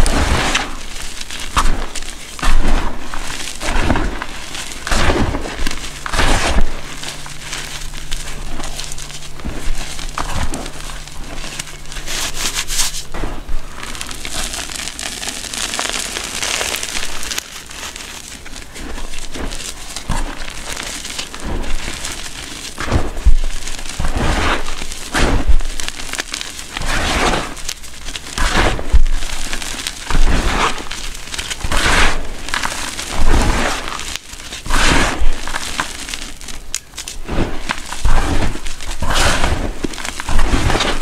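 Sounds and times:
hands crunching powdered chalk: 0.0 - 41.0.

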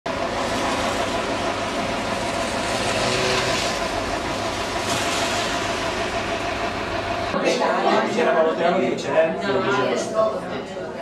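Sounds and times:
minibus engine idling: 0.1 - 10.7.

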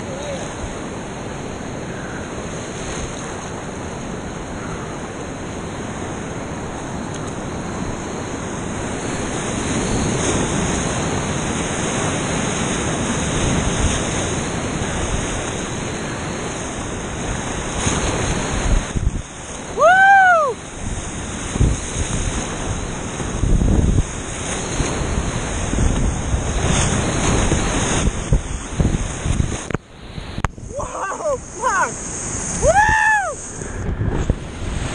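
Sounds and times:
whitewater rapids rushing: 0.0 - 29.6, 30.3 - 34.9
wind buffeting microphone: 0.0 - 34.9
high whoop: 19.7 - 20.6, 30.7 - 31.9, 32.5 - 33.6.

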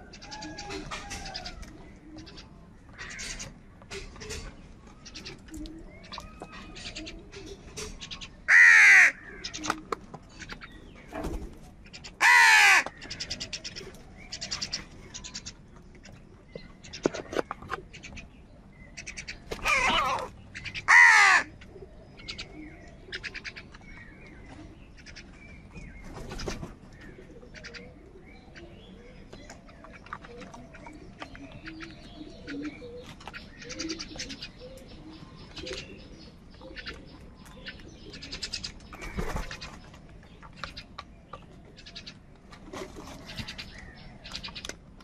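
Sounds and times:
quiet crow calls and clicks: 0.0 - 10.8, 11.8 - 24.4, 40.3 - 42.6, 43.3 - 45.0
crows cawing: 8.5 - 9.6, 12.2 - 13.4, 19.0 - 21.6.

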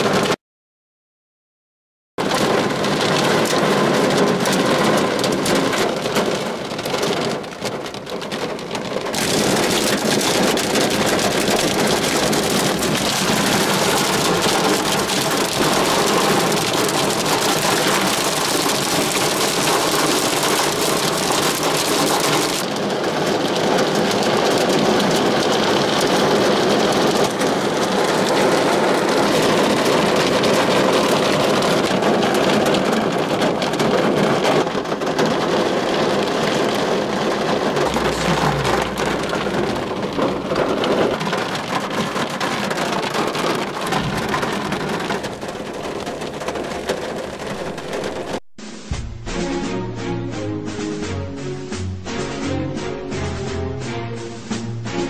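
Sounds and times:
hail and rain drumming on car: 0.0 - 0.4, 2.2 - 48.4.

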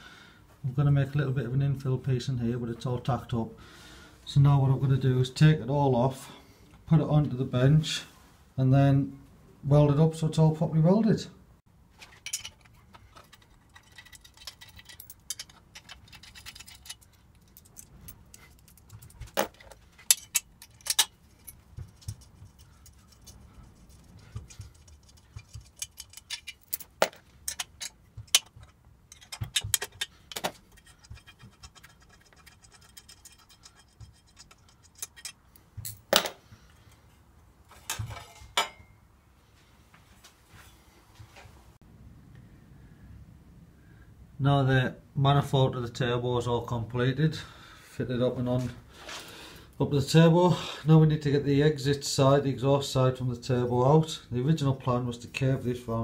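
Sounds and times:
spanner ratcheting: 12.2 - 35.5.

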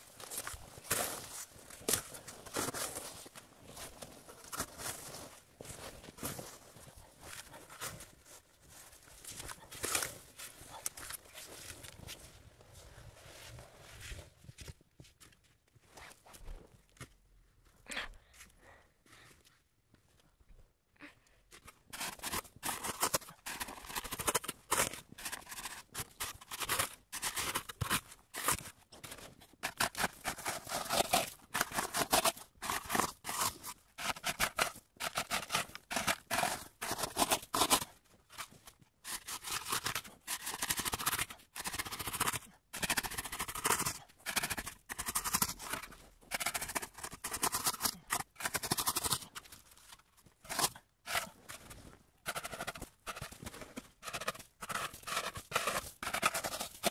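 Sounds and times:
snow scraping and crunching: 0.0 - 14.7.

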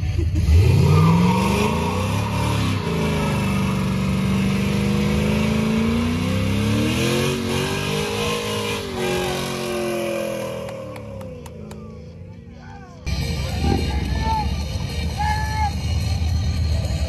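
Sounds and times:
engine revving high: 0.3 - 11.8.

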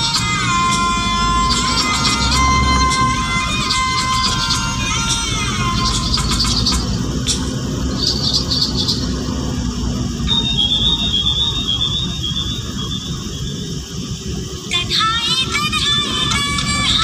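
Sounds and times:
high thin squeal: 0.0 - 9.2
vehicle rumble from inside: 0.0 - 17.0.

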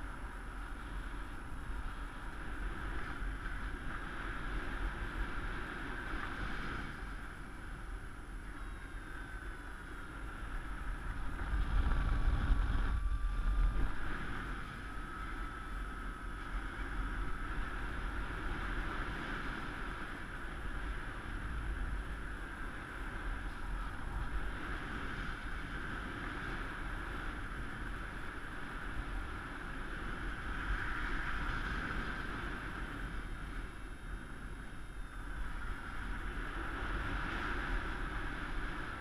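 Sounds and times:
wind rushing over microphone: 0.0 - 39.0
faint thin whistling tone: 7.4 - 11.3, 12.8 - 18.2.

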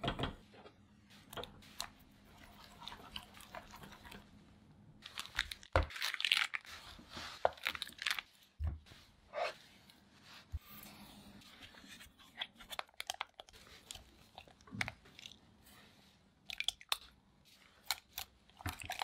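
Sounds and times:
baking paper crinkling: 5.0 - 9.0.

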